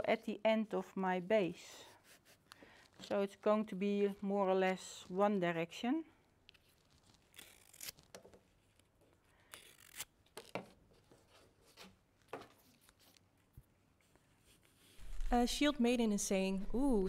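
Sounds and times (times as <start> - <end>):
scraping and tearing of leaves: 6.7 - 8.1, 9.4 - 10.1, 14.9 - 15.6.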